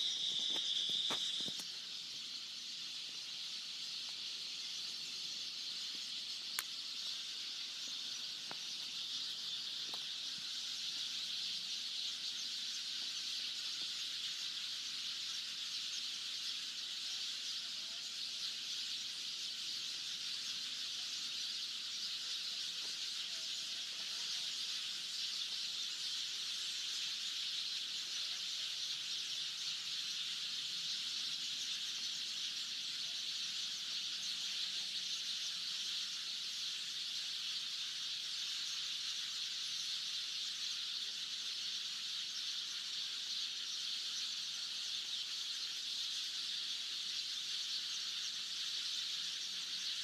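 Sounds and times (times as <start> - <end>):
high-pitched insect drone: 0.0 - 50.0
faint clicks: 5.9 - 6.8.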